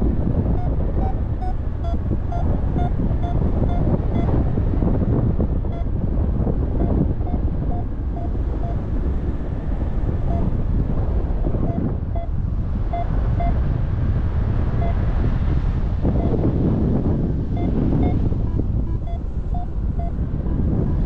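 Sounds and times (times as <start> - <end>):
wind buffeting microphone: 0.0 - 21.0
short electronic beeps: 0.6 - 4.3, 6.8 - 8.8, 10.2 - 10.6, 11.6 - 12.3, 12.9 - 13.6, 14.8 - 15.0, 17.5 - 21.0.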